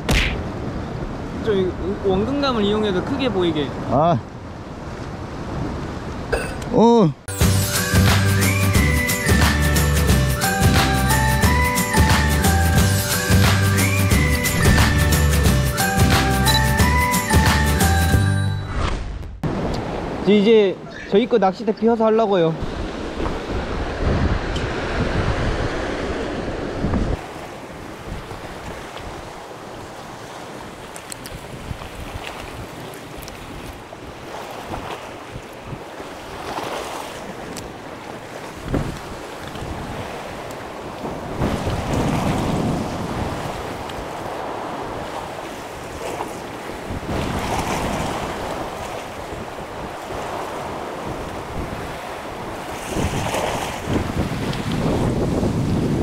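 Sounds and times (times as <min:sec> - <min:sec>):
surf on rocky shore: 0:00.0 - 0:56.0
wind buffeting microphone: 0:22.6 - 0:56.0.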